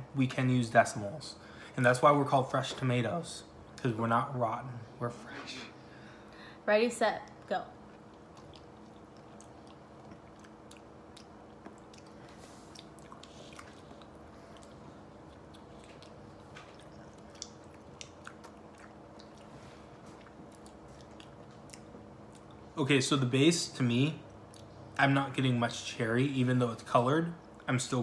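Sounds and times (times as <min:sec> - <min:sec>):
low room hum: 0:00.0 - 0:28.0
mouth smacks and clicks: 0:07.9 - 0:19.5.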